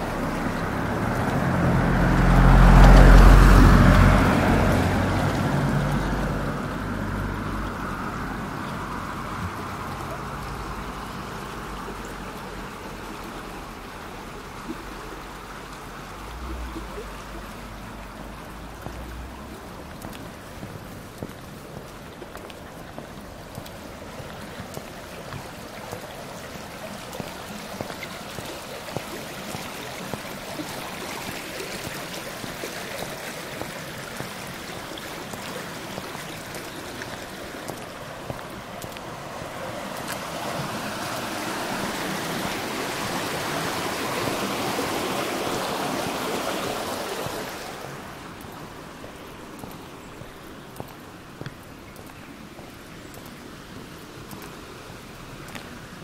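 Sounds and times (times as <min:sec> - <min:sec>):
stream water rushing: 0:00.0 - 0:56.0
faint ticks: 0:48.3 - 0:55.8.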